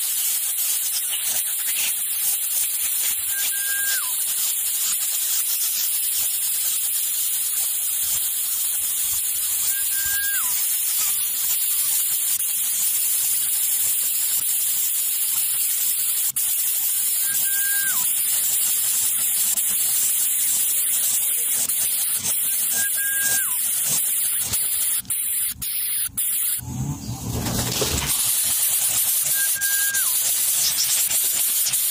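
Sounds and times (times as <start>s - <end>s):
loud steady high hiss: 0.0s - 31.9s
short whistled note dropping in pitch: 3.3s - 4.2s, 9.7s - 10.6s, 17.2s - 18.0s, 22.7s - 23.6s, 29.3s - 30.2s.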